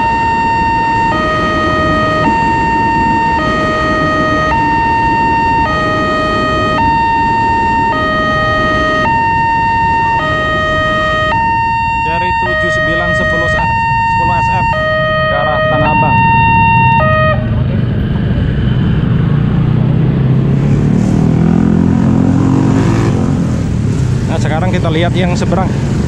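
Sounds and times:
level crossing two-tone alarm: 0.0 - 17.4.

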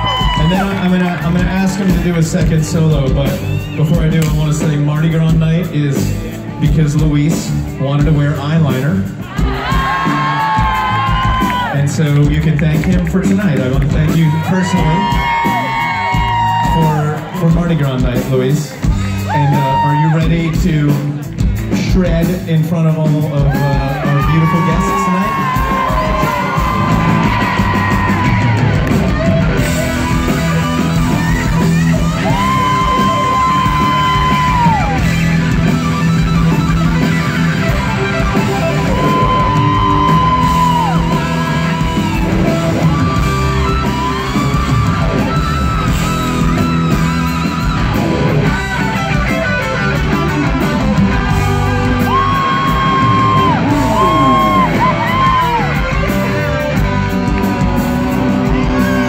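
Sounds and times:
live rock band playing: 0.0 - 59.0
electric guitar bending notes: 25.4 - 59.0.

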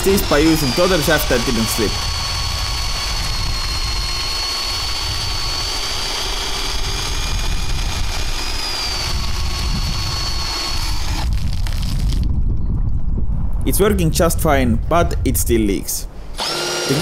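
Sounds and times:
drill motor whine: 0.0 - 12.2, 16.4 - 17.0.

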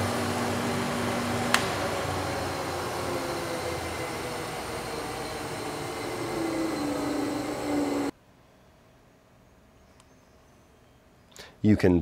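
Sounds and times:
planer whirring hum: 0.0 - 8.2.

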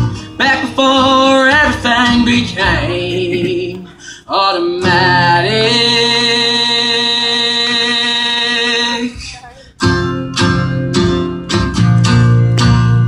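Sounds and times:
man singing: 0.0 - 9.5
strummed acoustic guitar: 0.0 - 13.0.

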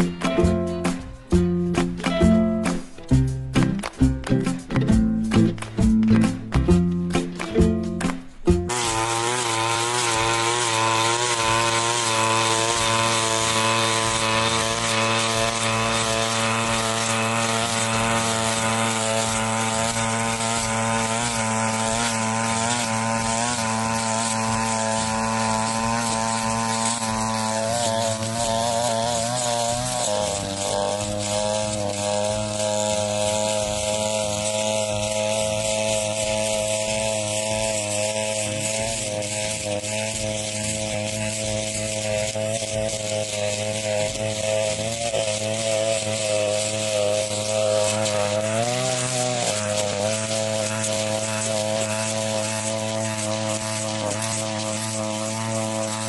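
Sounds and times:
brush cutter engine running: 0.0 - 56.0
cutting head sweeping through dry grass: 2.4 - 56.0.

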